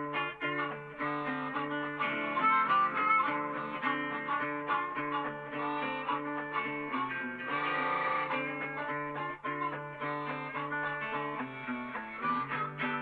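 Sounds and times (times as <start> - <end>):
plucked guitar music: 0.0 - 13.0.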